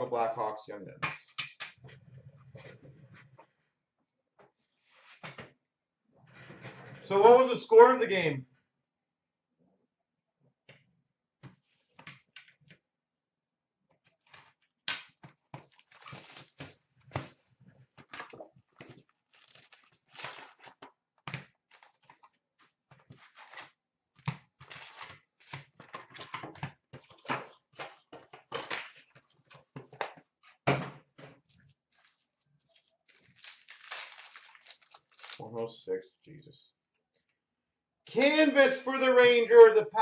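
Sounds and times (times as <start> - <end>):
card packs scraping and rustling: 31.9 - 35.4.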